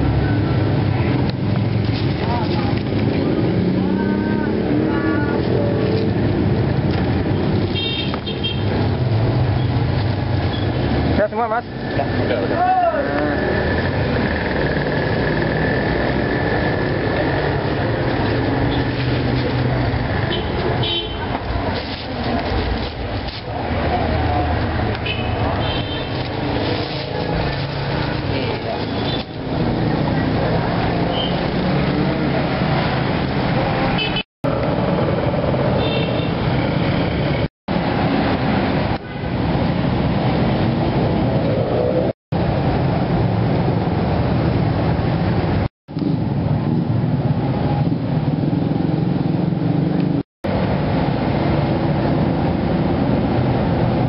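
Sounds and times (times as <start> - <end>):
vehicle engines running: 0.0 - 54.0.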